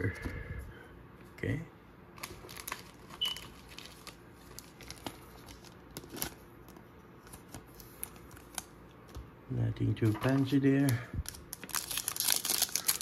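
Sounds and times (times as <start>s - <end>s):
trading cards clicking and rustling: 10.0s - 13.0s.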